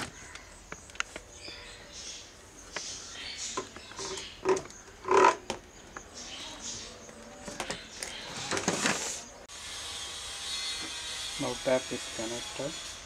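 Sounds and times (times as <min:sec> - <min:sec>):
hose connector scraping and squeaking: 0:03.7 - 0:05.5.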